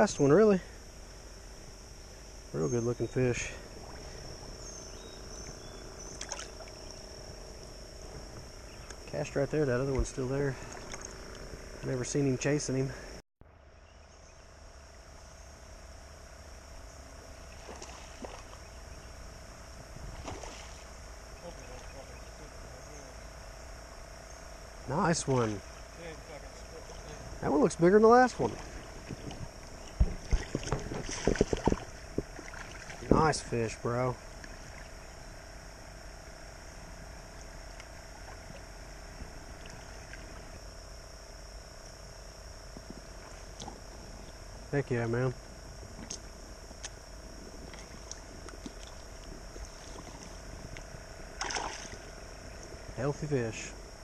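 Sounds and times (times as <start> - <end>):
insect drone: 0.0 - 54.0
water stirring around legs: 28.3 - 33.2, 51.4 - 52.1
faint ticks: 47.6 - 49.7.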